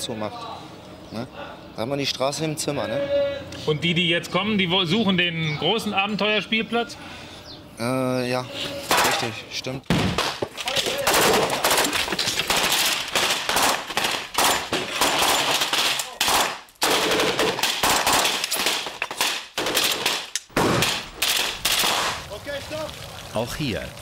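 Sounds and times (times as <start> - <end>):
assault rifles firing: 9.9 - 22.2.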